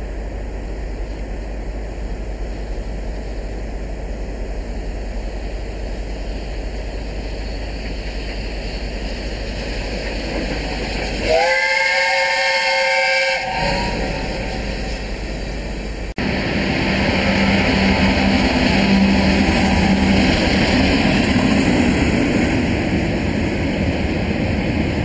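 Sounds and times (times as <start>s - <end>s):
passing train: 0.0s - 25.0s
steam locomotive whistle: 11.2s - 14.8s
steady rushing noise: 13.4s - 25.0s.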